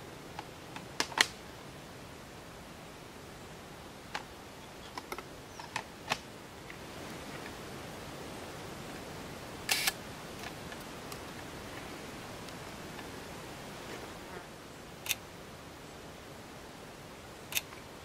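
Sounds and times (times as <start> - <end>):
camera mechanical clicks: 9.7 - 10.0
camera shutter double click: 9.7 - 10.0.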